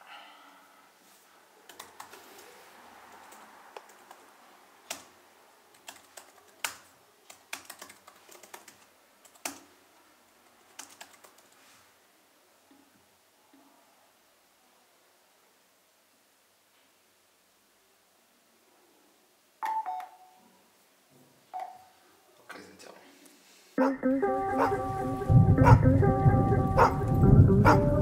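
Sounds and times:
laptop keyboard typing: 0:01.6 - 0:02.5, 0:03.1 - 0:09.8, 0:10.6 - 0:11.6.

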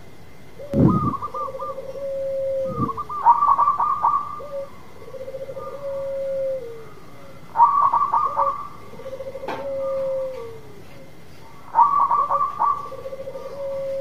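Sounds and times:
doves cooing: 0:00.4 - 0:14.0.

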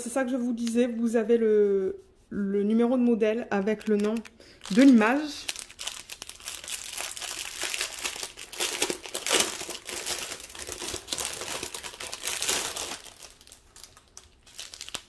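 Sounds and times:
plastic packaging crinkling: 0:03.5 - 0:15.0.

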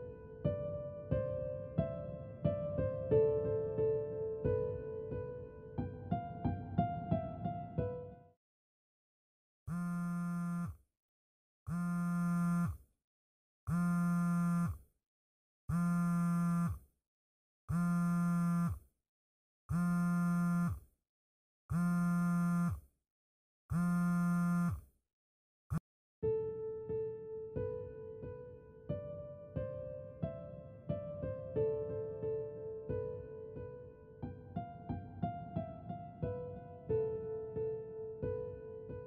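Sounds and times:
phone vibrating buzz: 0:09.7 - 0:10.8, 0:11.7 - 0:12.9, 0:13.7 - 0:14.9, 0:15.7 - 0:16.9, 0:17.7 - 0:18.9, 0:19.7 - 0:20.9, 0:21.7 - 0:22.9, 0:23.7 - 0:24.9.

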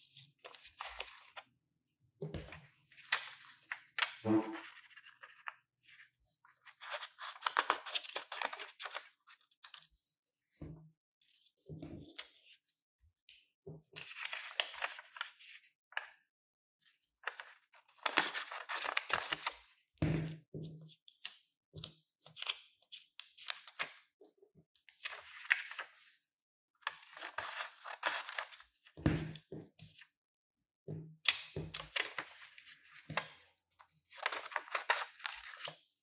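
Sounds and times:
paper rustling: 0:00.4 - 0:01.4, 0:02.4 - 0:10.0, 0:14.0 - 0:15.6, 0:17.3 - 0:19.6, 0:25.0 - 0:26.1, 0:26.8 - 0:28.7, 0:31.8 - 0:33.3, 0:34.1 - 0:35.7.

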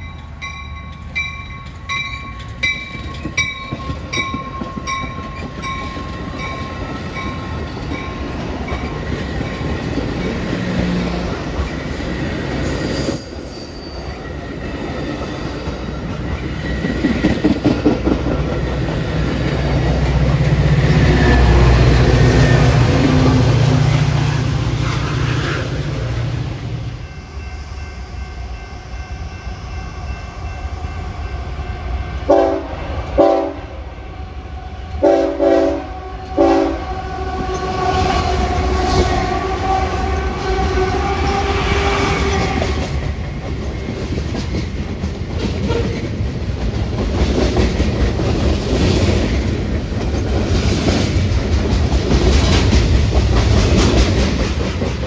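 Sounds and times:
rolling clatter of train cars: 0:00.0 - 0:33.5, 0:34.9 - 0:55.0
locomotive horn short blasts: 0:32.3 - 0:33.7, 0:35.0 - 0:38.0.

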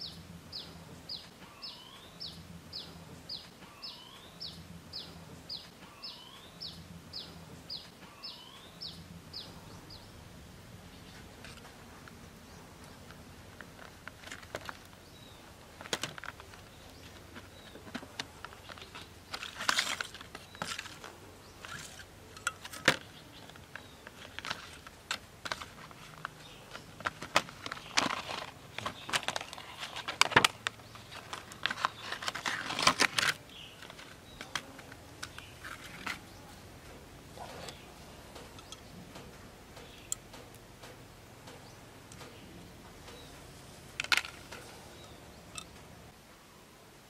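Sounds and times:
plastic blister pack crackling: 0:12.8 - 0:36.4.

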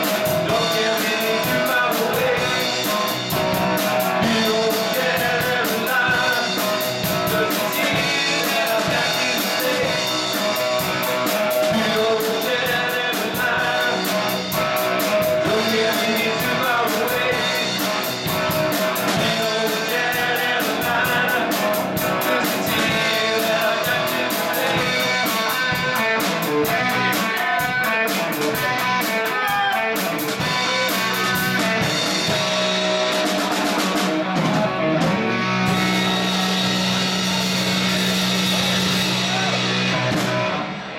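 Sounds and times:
cymbals keeping fast beat: 0:00.0 - 0:34.2, 0:35.5 - 0:40.6
bass guitar: 0:00.0 - 0:40.9
drum kit: 0:00.0 - 0:40.9
electric guitars: 0:00.0 - 0:40.9.

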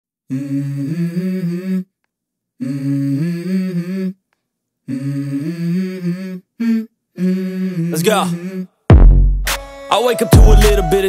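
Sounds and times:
two voices humming melody: 0:00.3 - 0:02.0, 0:02.6 - 0:04.2, 0:04.9 - 0:08.8.

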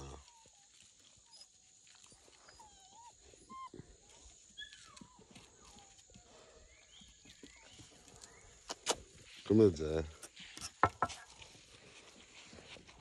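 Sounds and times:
faint dog whining: 0:00.0 - 0:07.8.

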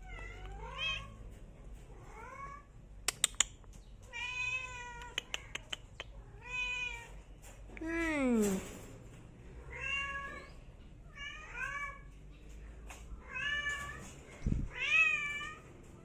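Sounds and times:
sharp clicks: 0:03.0 - 0:03.8.

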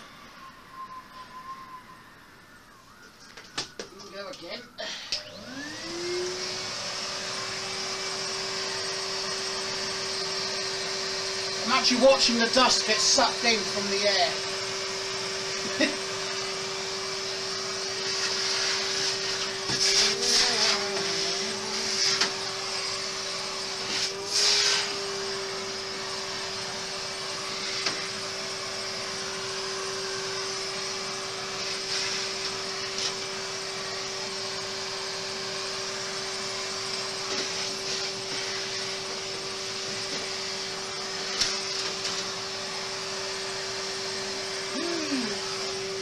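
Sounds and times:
vacuum cleaner running: 0:00.0 - 0:46.0.

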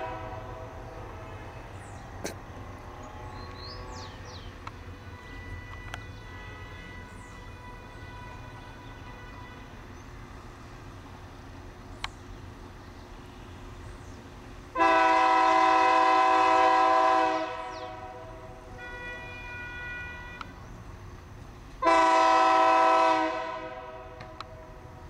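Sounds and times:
locomotive air horn blasts: 0:00.0 - 0:02.4, 0:03.1 - 0:10.4, 0:14.7 - 0:20.7, 0:21.8 - 0:25.0
low train rumble: 0:00.0 - 0:25.0.

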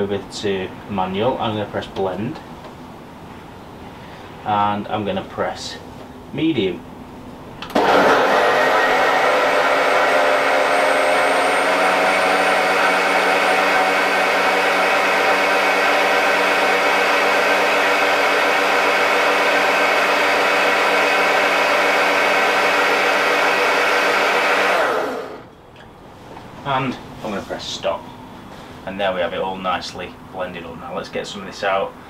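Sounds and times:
blender motor whirring: 0:07.7 - 0:25.5.

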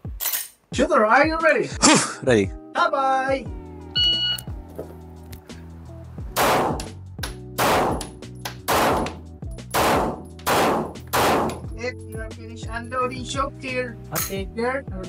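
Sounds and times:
pistol shots with reverberation: 0:06.4 - 0:06.9, 0:07.6 - 0:08.1, 0:08.7 - 0:11.7.

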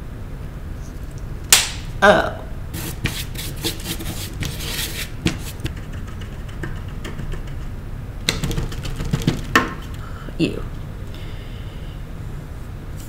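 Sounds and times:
paintbrush strokes scratching: 0:02.8 - 0:07.7.

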